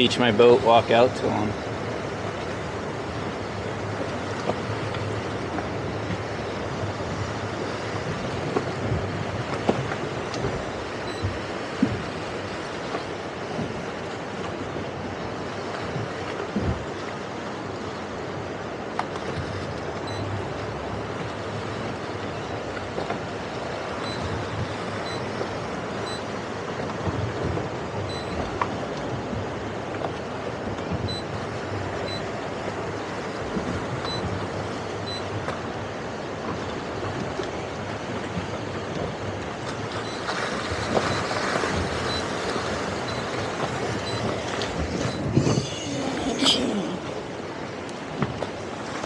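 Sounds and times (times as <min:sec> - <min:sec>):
boat engine rumbling: 0:00.0 - 0:49.0
water washing along boat hull: 0:00.0 - 0:49.0
waves and surf: 0:00.0 - 0:49.0
short high beeps: 0:20.1 - 0:20.3, 0:24.0 - 0:24.3, 0:25.0 - 0:25.3, 0:28.1 - 0:28.4, 0:44.0 - 0:44.2, 0:45.0 - 0:46.6
wind buffeting microphone: 0:27.0 - 0:48.7
wind on microphone: 0:40.8 - 0:48.4.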